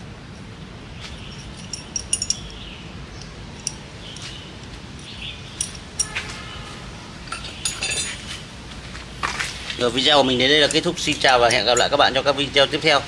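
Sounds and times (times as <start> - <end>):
light clinks and taps: 1.2 - 2.6, 3.2 - 6.2.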